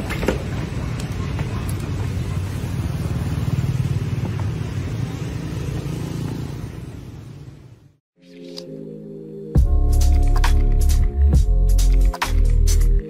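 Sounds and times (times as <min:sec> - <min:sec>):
passing motorbikes and cars: 0:00.0 - 0:08.0
street traffic rumble: 0:00.0 - 0:08.0.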